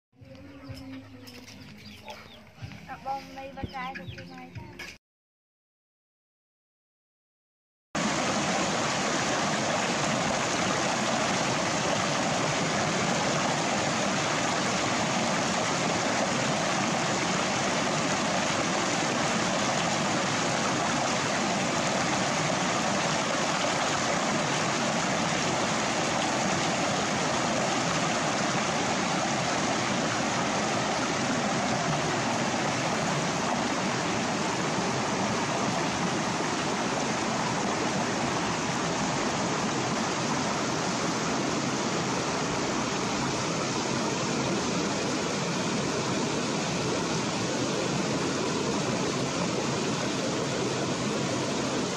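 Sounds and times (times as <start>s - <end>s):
stream water rushing: 8.0s - 51.9s.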